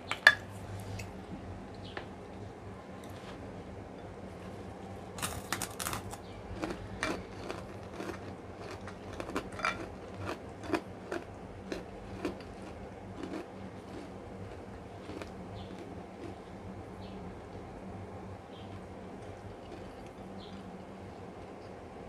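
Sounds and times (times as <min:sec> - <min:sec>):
crunching bites of cracker: 0:05.2 - 0:16.4
chewing with mouth clicks: 0:05.2 - 0:16.5, 0:18.5 - 0:20.7.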